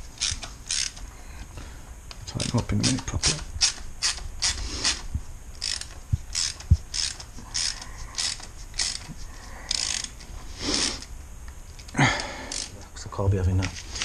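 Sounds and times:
hand ratchet clicking: 0.2s - 1.1s, 2.1s - 5.0s, 5.6s - 10.2s, 11.8s - 12.8s.

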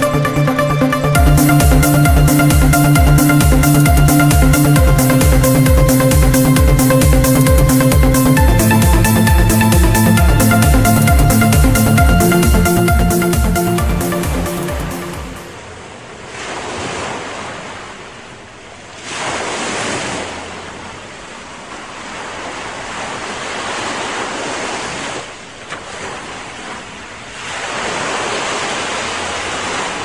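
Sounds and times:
sea waves breaking on shore: 14.1s - 30.0s.

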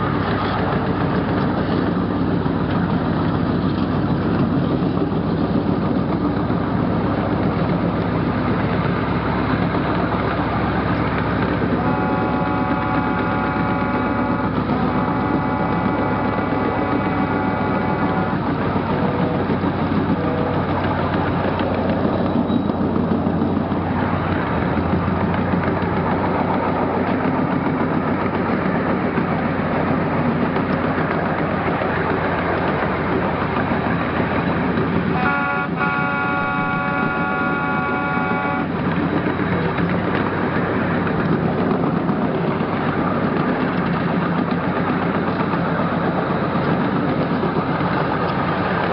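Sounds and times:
ride-on train rumbling: 0.0s - 48.9s
locomotive chime whistle blasts: 11.6s - 20.8s, 35.1s - 38.8s.

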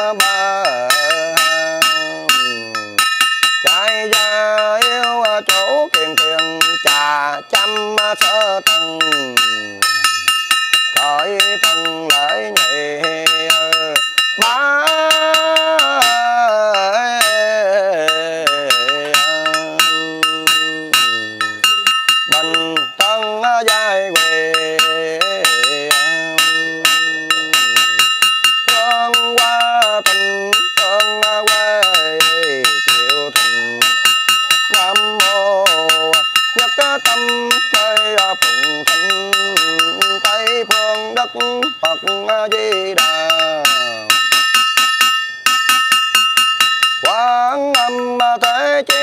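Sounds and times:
person chanting melodically: 0.0s - 44.5s, 47.0s - 49.0s
small bell struck rapidly: 0.0s - 49.0s.

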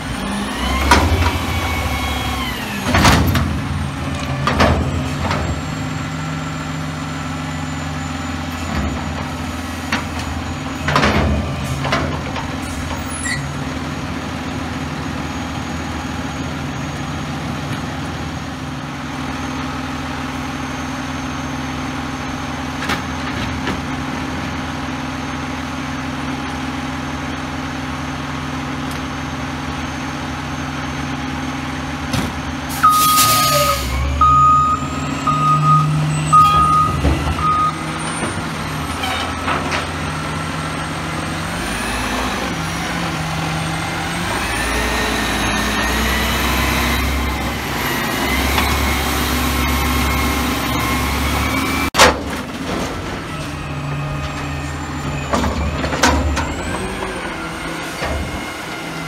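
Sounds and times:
garbage truck idling: 0.0s - 59.0s
air brakes hissing: 32.7s - 34.2s
reversing alarm beeping: 32.7s - 38.4s
engine revving: 40.4s - 52.0s.

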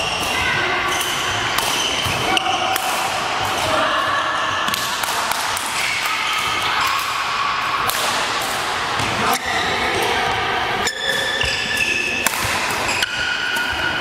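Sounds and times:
racket hitting shuttlecock: 1.0s - 3.7s, 4.7s - 5.8s, 7.8s - 10.1s, 10.8s - 14.0s
shoes squeaking on court floor: 10.8s - 14.0s.

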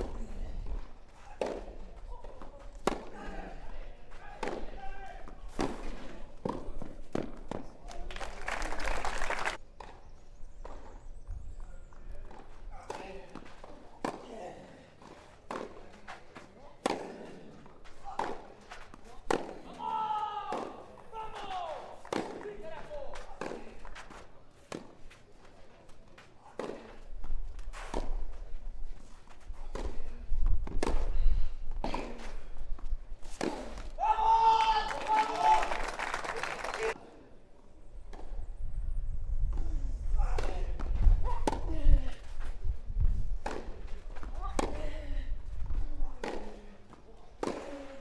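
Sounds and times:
racket hitting tennis ball: 0.0s - 3.3s, 4.3s - 7.7s, 12.3s - 25.2s, 26.4s - 34.1s, 39.5s - 48.0s.

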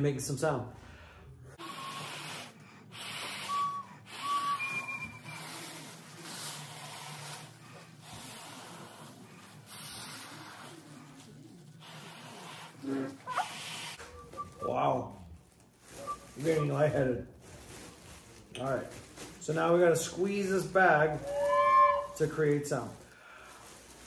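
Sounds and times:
breaths blown into bag: 1.5s - 11.0s
thin recorder whistles: 1.6s - 5.6s, 13.3s - 14.8s, 21.2s - 22.2s.

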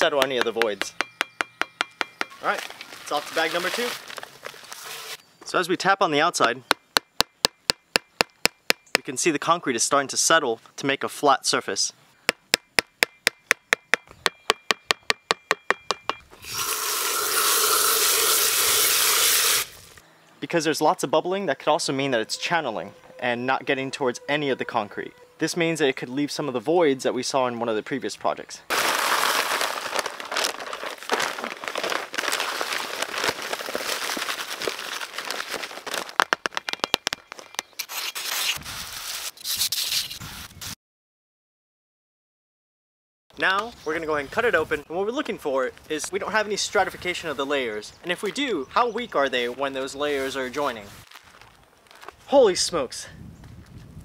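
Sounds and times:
trowel scraping and patting: 2.0s - 5.2s, 36.2s - 40.8s
paper bag rustling: 2.4s - 5.2s, 28.7s - 39.3s, 50.9s - 52.2s
dry mix pouring from bag: 2.8s - 5.2s, 28.7s - 36.2s
hose spray hissing water: 16.4s - 19.9s.

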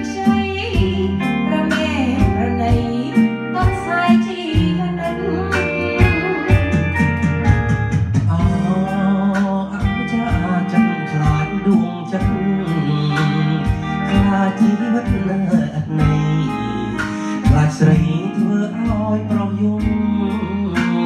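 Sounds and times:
karaoke backing track: 0.0s - 21.0s
man singing into microphone: 8.3s - 21.0s.

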